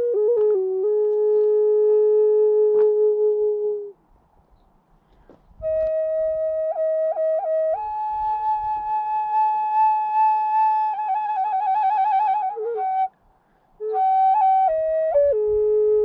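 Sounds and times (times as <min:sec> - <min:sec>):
end-blown flute: 0:00.0 - 0:04.0, 0:05.6 - 0:13.2, 0:13.8 - 0:16.0.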